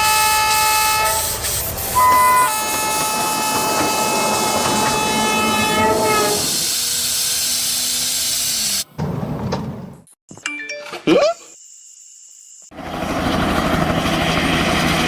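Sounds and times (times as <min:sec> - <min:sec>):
train horn chord: 0:00.0 - 0:01.3, 0:02.0 - 0:06.6
moving train rumble and clatter: 0:00.0 - 0:07.1, 0:12.8 - 0:15.0.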